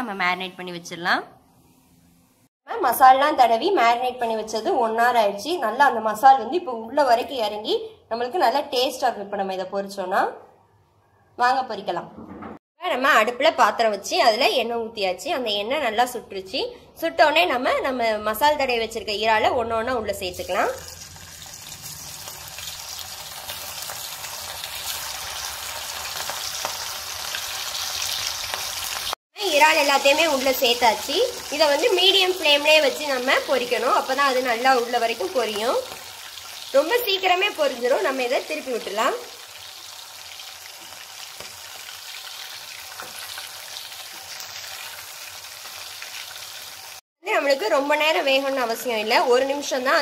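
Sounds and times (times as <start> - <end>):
prawns sizzling in hot oil: 20.4 - 47.0.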